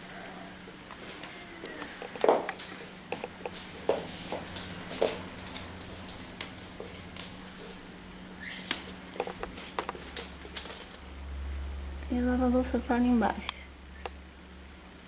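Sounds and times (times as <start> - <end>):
faint steady hum: 0.0 - 15.0
plastic wrapping crinkling: 1.0 - 7.8, 8.4 - 11.0.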